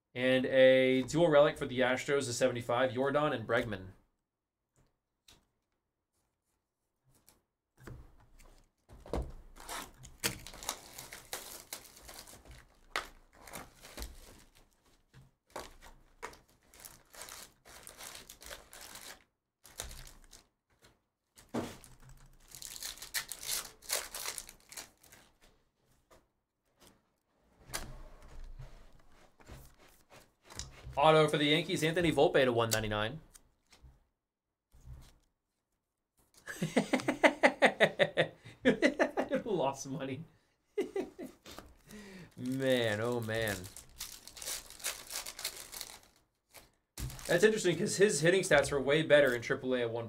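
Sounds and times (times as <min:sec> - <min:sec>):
cardboard and wrappers tearing: 0:09.6 - 0:14.8, 0:15.5 - 0:20.5, 0:21.4 - 0:25.3, 0:42.3 - 0:47.6.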